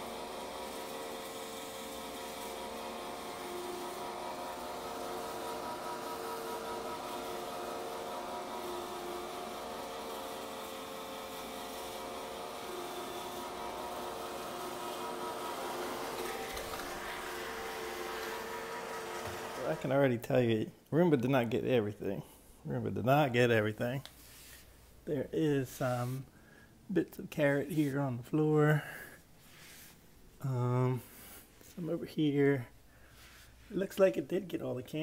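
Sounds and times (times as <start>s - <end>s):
robot vacuum whirring: 0.0s - 19.9s.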